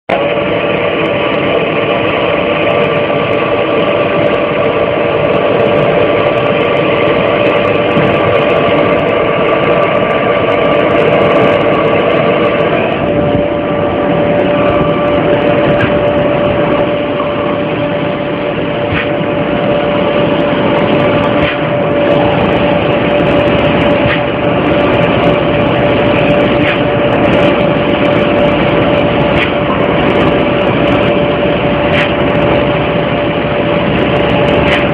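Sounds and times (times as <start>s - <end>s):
machine hum: 0.0s - 34.9s.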